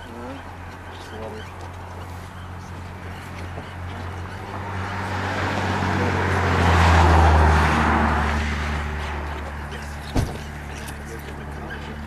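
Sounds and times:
low engine hum: 0.0s - 12.0s
vehicle passing: 0.0s - 12.0s
sharp knock: 10.1s - 10.5s.

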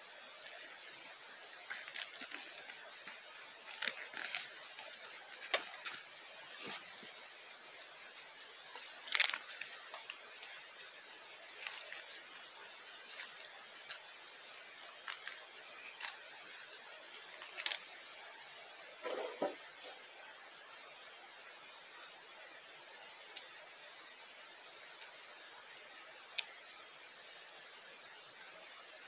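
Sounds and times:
high-pitched drone of insects: 0.0s - 29.0s
sharp clicks and crackles: 1.6s - 6.1s.

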